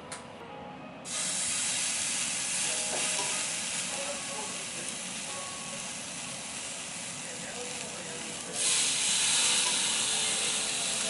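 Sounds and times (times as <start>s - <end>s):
meat sizzling on a charcoal grill: 1.1s - 11.0s.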